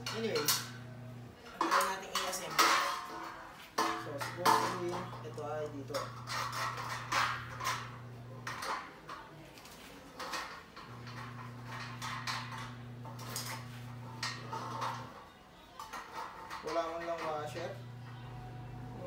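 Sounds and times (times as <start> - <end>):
steady low hum: 0.0 - 1.4, 4.1 - 8.6, 10.9 - 15.1, 17.8 - 19.0.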